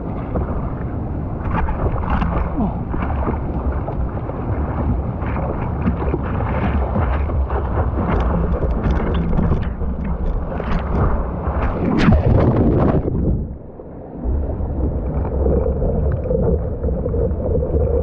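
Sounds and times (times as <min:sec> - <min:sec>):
water slapping against board: 0:00.0 - 0:13.6
wind rumbling on microphone: 0:00.0 - 0:18.0.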